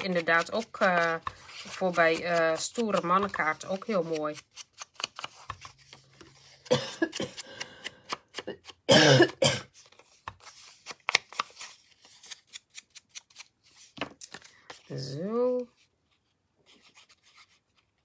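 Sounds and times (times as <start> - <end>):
person coughing: 6.7 - 7.4, 8.9 - 9.7.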